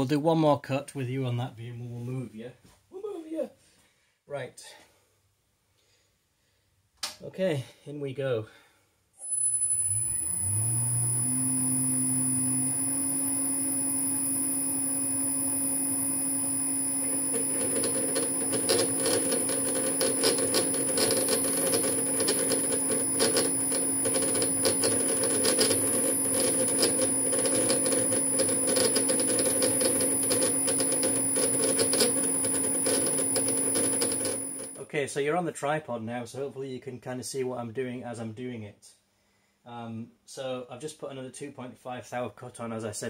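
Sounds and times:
lathe motor humming with whine: 0:09.2 - 0:34.8.

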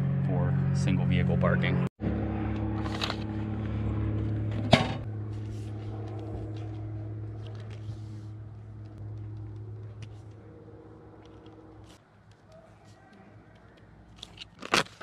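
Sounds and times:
vehicle engine idling: 0:02.0 - 0:12.9.

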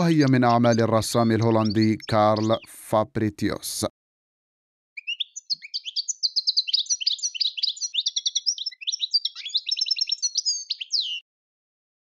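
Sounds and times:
goldfinch twittering song: 0:00.0 - 0:02.8, 0:05.0 - 0:11.2.

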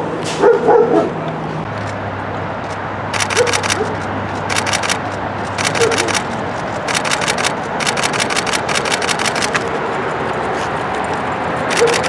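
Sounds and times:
street traffic noise: 0:00.0 - 0:12.0
camera shutter clicks: 0:02.7 - 0:09.7, 0:11.7 - 0:12.0.

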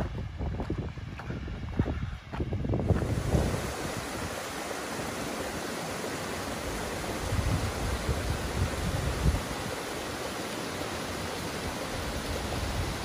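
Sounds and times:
wind buffeting microphone: 0:00.0 - 0:10.1, 0:11.1 - 0:13.0
mountain stream rushing: 0:02.9 - 0:13.0.

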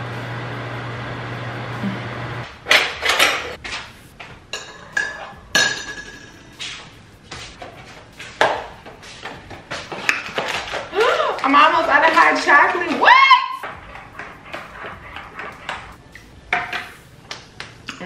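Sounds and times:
mug and spoon clinking on counter: 0:04.5 - 0:06.4.

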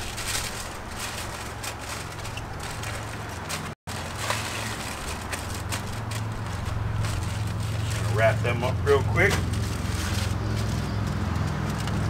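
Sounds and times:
aluminium foil crinkling: 0:00.0 - 0:12.0.

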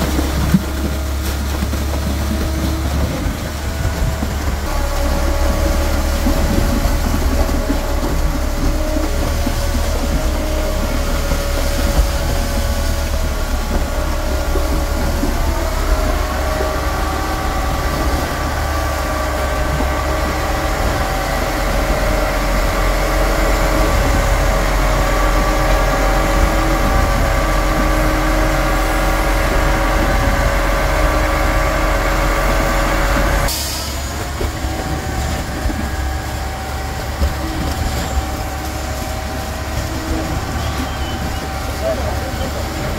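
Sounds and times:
loud diesel drone: 0:00.0 - 0:42.9
wavering machinery whine: 0:00.0 - 0:42.9.

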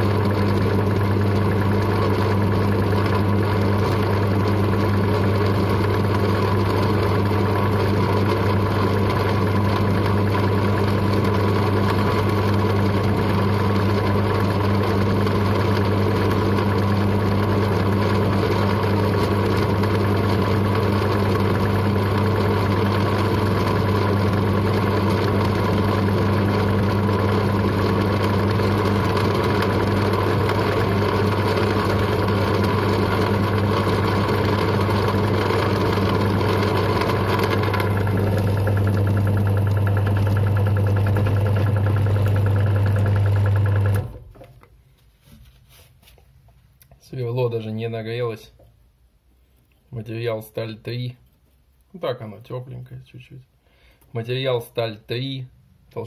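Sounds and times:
drill press motor hum: 0:00.0 - 0:44.6.

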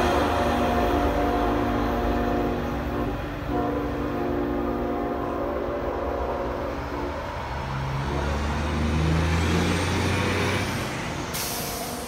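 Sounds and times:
train air horn chord: 0:00.0 - 0:07.5
sudden hiss: 0:11.3 - 0:12.0.

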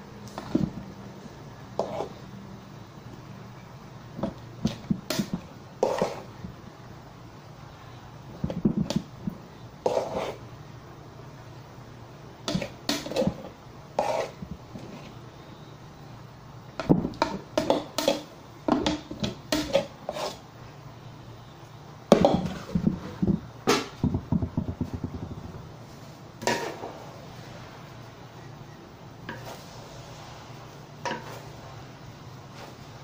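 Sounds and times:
metal spatula scraping a wok: 0:01.8 - 0:02.2, 0:05.1 - 0:06.4, 0:09.8 - 0:10.4, 0:12.5 - 0:15.2, 0:19.0 - 0:20.5, 0:26.0 - 0:27.7, 0:29.3 - 0:33.0.

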